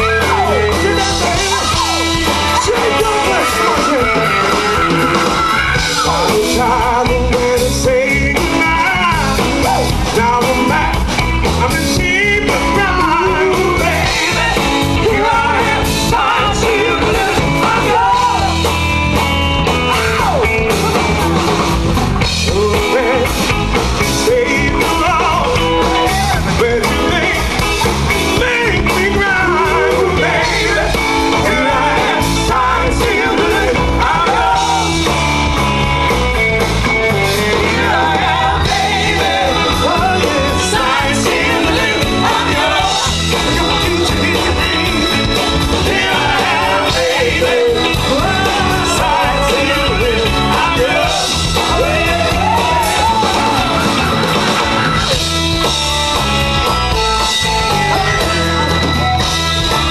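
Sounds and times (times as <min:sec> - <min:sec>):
person singing: 0:00.0 - 0:18.7, 0:28.3 - 0:35.2, 0:37.3 - 0:54.2
bass: 0:00.0 - 0:59.9
drums: 0:00.0 - 0:59.9
electric guitars: 0:00.0 - 0:59.9
keyboards: 0:00.0 - 0:59.9.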